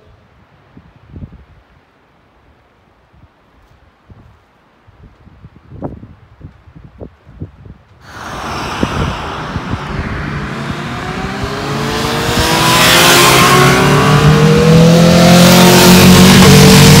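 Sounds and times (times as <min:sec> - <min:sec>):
motorcycle engines accelerating: 0:08.1 - 0:17.0.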